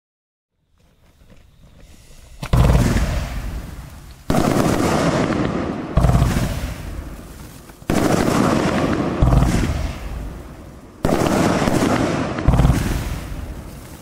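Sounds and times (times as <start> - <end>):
fuse hiss: 1.1 - 4.3
firework bangs and crackling: 1.9 - 14.0.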